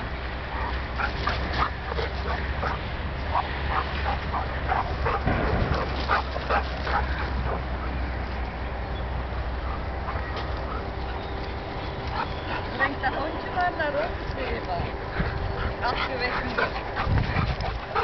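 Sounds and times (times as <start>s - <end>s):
dog barking: 0.6s - 5.2s.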